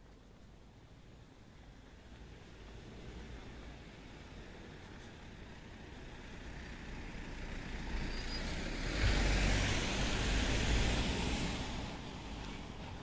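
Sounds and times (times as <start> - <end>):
vehicle driving past: 6.0 - 12.8.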